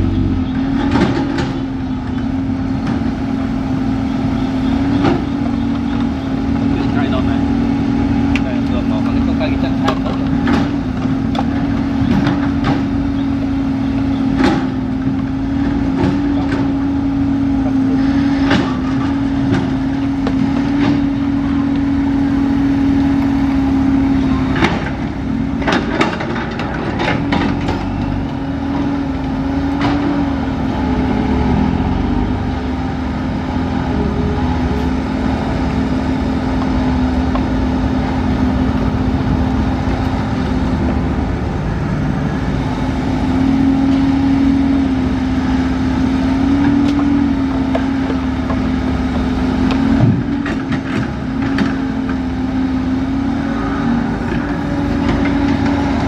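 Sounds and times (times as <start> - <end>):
excavator diesel engine droning: 0.0 - 56.0
motorbike passing: 51.5 - 56.0.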